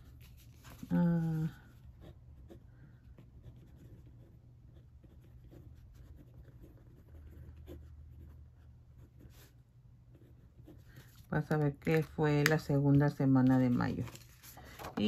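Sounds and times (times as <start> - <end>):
pen scratching on paper: 1.9 - 11.0.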